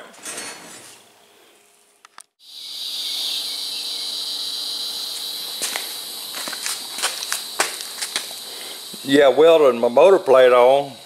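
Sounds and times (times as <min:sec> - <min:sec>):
crickets chirping: 0:02.4 - 0:11.0.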